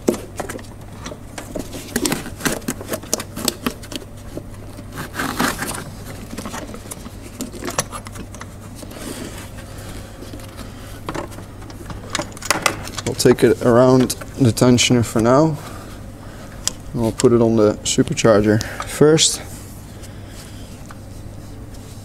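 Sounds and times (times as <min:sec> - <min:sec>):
belt and gloves clicking and scraping: 0:00.0 - 0:14.2
steady low hum: 0:00.0 - 0:22.0.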